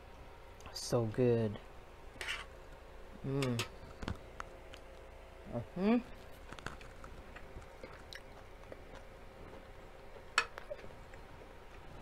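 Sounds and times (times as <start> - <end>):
person chewing food: 6.2 - 12.0.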